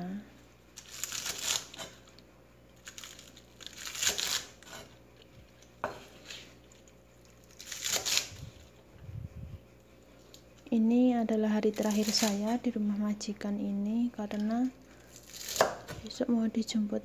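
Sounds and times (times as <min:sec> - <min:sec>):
cleaver chopping on wooden board: 0:15.5 - 0:16.0.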